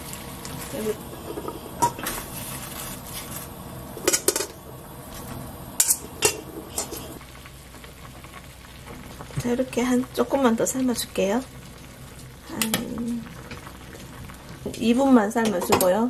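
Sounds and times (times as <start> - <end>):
boiling water bubbling hiss: 0.0 - 16.0.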